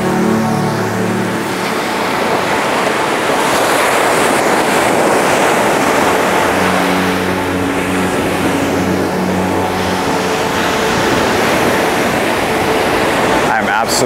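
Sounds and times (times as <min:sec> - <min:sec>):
steady low tones: 0:00.0 - 0:14.0
waves breaking on beach: 0:00.0 - 0:14.0.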